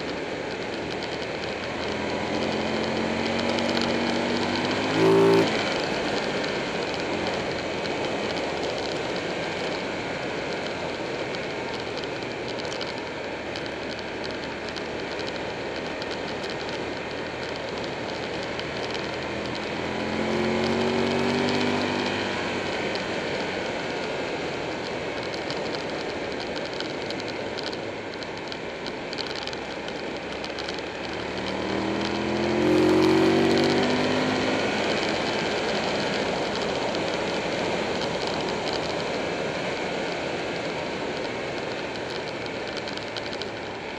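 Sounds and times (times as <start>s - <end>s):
motorcycle engine running: 0.0s - 43.9s.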